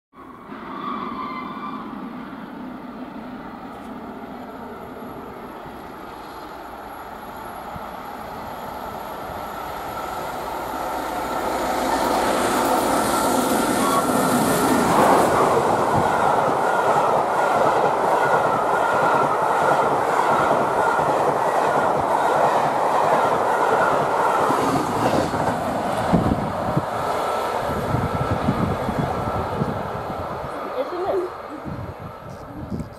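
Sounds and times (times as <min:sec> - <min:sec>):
steam locomotive whistle: 0:00.3 - 0:02.0, 0:11.6 - 0:14.5.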